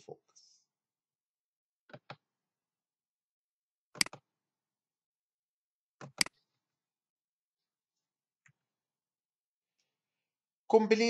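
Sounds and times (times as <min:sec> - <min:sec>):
computer mouse clicking: 0:04.0 - 0:04.3, 0:06.0 - 0:06.4.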